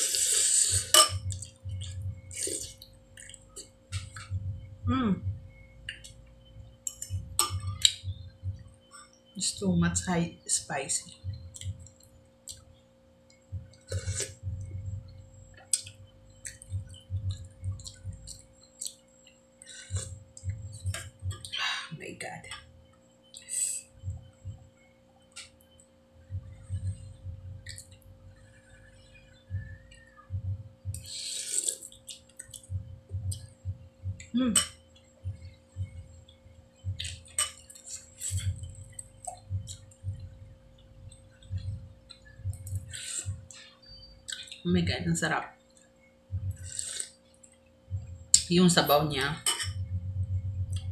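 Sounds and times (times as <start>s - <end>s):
person slurping soup: 0.0s - 1.0s, 31.1s - 31.8s, 46.6s - 47.1s
spoon clinking against bowl: 0.9s - 1.2s
chewing: 15.6s - 21.6s, 30.9s - 32.7s, 41.1s - 44.6s.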